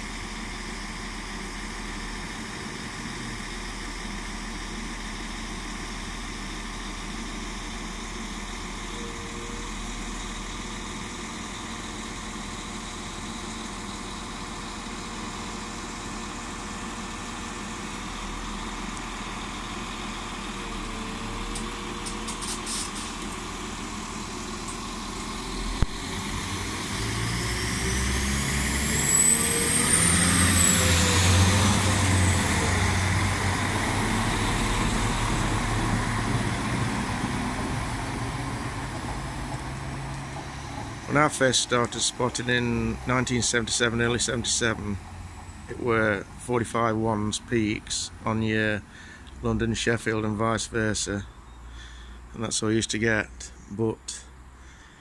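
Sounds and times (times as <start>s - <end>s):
high whine: 0.0s - 12.9s
train engines revving: 0.0s - 53.5s
diesel train idling: 0.0s - 55.0s.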